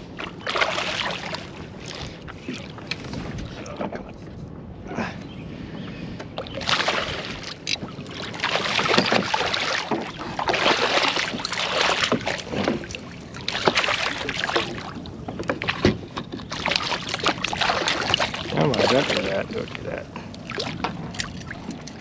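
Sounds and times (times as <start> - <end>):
fish splashing in water: 0.2 - 2.8, 6.5 - 15.0, 15.6 - 19.7.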